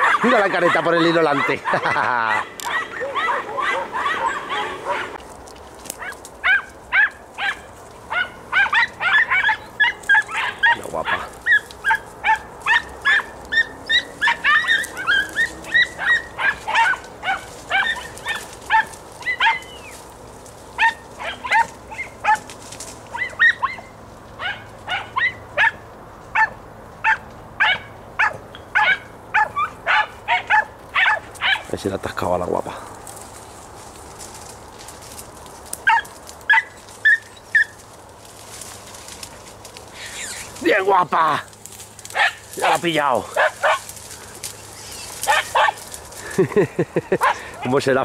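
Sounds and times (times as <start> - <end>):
hounds yelping: 0.0 - 31.9, 34.0 - 46.4, 47.0 - 48.0.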